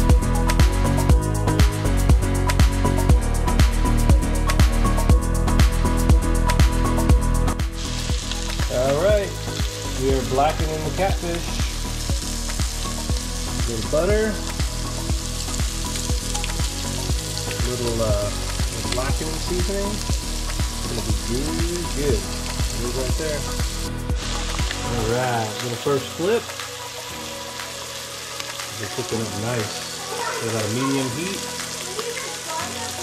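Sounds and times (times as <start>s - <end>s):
background music with beat: 0.0s - 32.7s
fish frying in hot oil: 6.6s - 33.0s.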